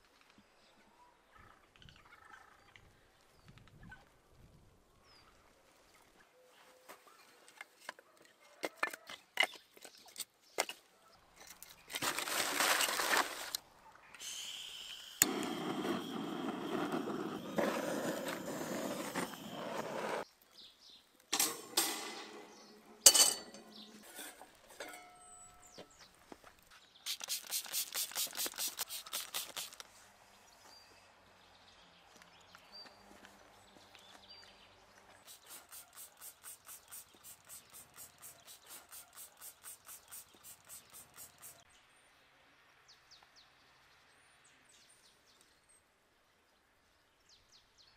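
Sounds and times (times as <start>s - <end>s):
newspaper and kindling rustling: 11.9s - 13.6s, 27.2s - 30.0s.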